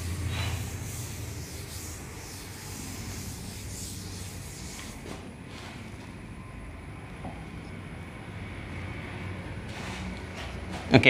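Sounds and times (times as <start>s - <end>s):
hand rubbing whiteboard screen: 0.0s - 6.1s, 9.6s - 10.9s
steady low hum: 0.0s - 11.0s.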